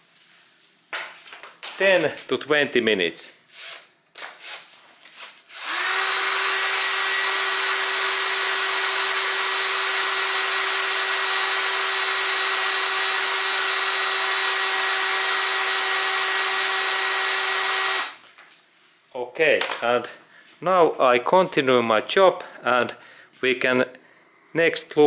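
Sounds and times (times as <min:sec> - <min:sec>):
cordless drill whining: 0:05.2 - 0:18.2
drill bit cutting metal: 0:05.5 - 0:18.2.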